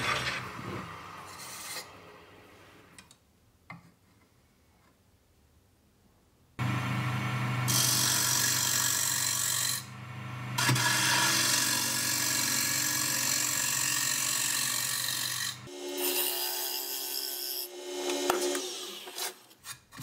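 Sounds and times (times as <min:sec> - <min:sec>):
wood lathe motor hum: 0:06.6 - 0:16.5.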